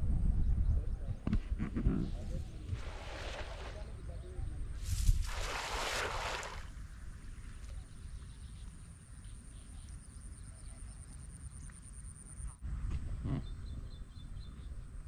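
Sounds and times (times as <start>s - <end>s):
wind rumbling on microphone: 0.0s - 8.9s.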